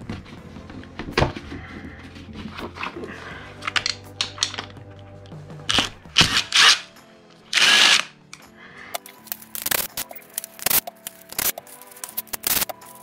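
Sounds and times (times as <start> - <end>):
background music: 0.0 - 13.0
cordless drill spinning bolts: 5.7 - 6.8, 7.5 - 8.1
sharp metallic clicks: 7.6 - 12.9.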